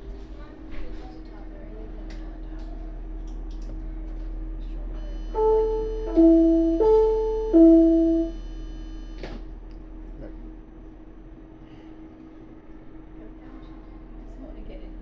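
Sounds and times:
steady low hum: 2.9s - 12.2s
public address chime: 5.0s - 8.4s.

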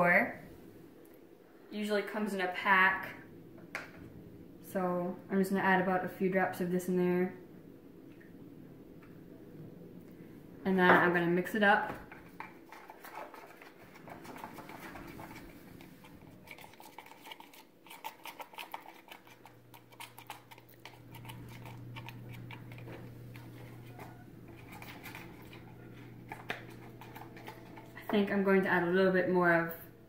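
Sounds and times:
spoon stirring slime in plastic cup: 12.0s - 28.6s.

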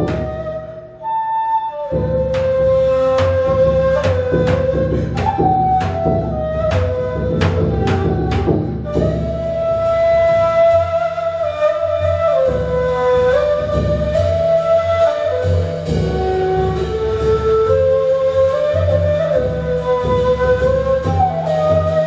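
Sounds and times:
ney flute melody: 0.0s - 22.0s
drum struck with mallets: 2.2s - 10.1s.

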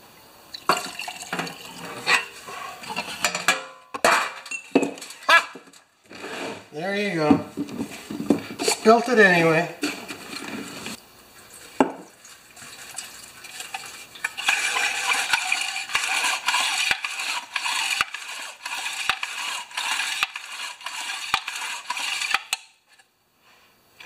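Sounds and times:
liquid splashing and sloshing: 10.2s - 22.3s.

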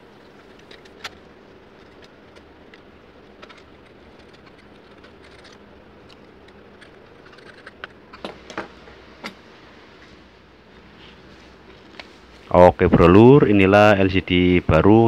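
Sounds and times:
knife blade scraping adhesive: 0.6s - 8.2s.

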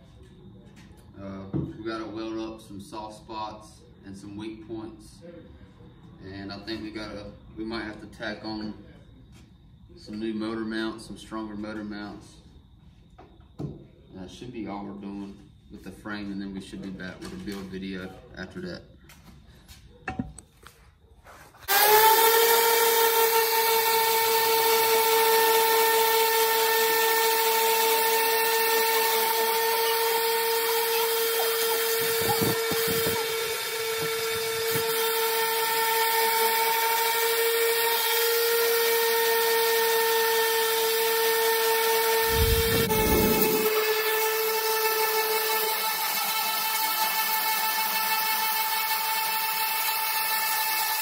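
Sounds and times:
orbital sander whining: 21.7s - 51.0s.

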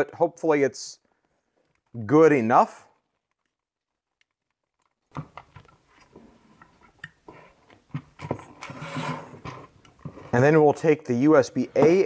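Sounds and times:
cable winding clicks and rustles: 3.0s - 6.1s.

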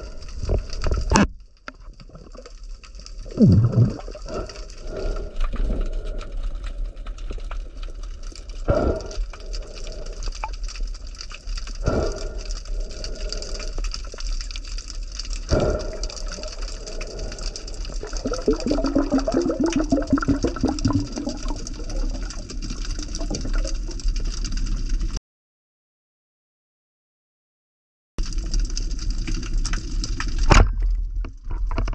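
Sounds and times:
rapid crackling clicks: 0.0s - 25.2s
muffled underwater rush and hum: 3.2s - 6.2s, 15.5s - 24.0s.

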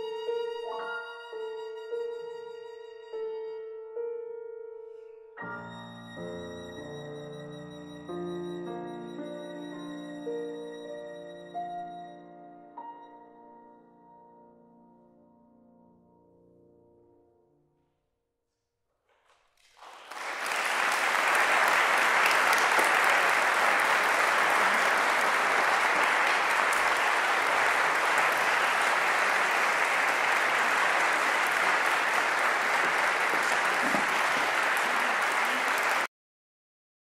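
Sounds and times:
audience applauding: 19.6s - 36.1s.

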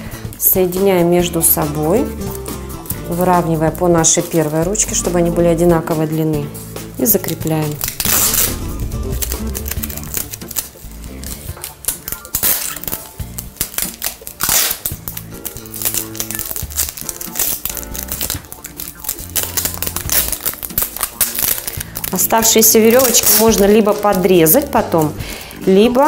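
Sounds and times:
background music with low notes: 0.0s - 26.0s
crinkling and rustling handling: 7.2s - 26.0s
sharp crinkles: 7.7s - 24.3s.

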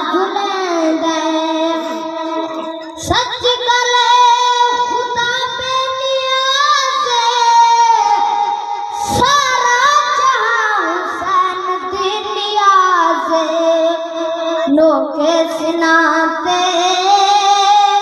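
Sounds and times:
boy singing into a microphone: 0.0s - 18.0s.

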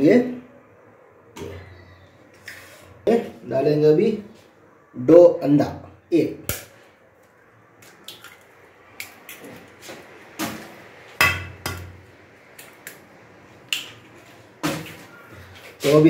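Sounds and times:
eggs cracking on metal bowl: 7.8s - 9.5s.

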